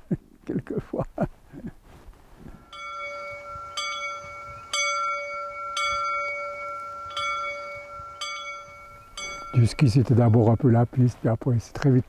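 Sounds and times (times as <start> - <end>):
small bell ringing: 2.6 - 11.2.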